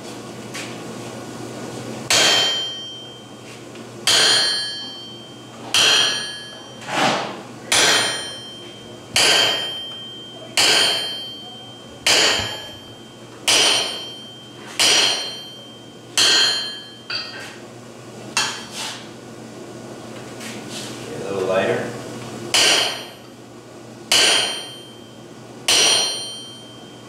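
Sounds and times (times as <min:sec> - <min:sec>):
sledgehammer striking chisel on metal: 0:02.1 - 0:03.0, 0:04.0 - 0:07.0, 0:07.7 - 0:08.6, 0:09.2 - 0:17.5, 0:18.4 - 0:18.7, 0:22.5 - 0:23.2, 0:24.1 - 0:25.0, 0:25.7 - 0:26.7.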